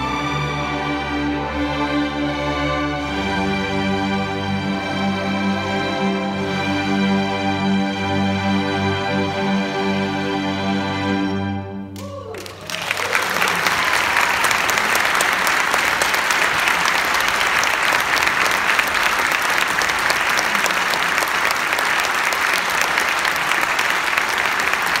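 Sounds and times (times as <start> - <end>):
audience applause: 12.0 - 25.0.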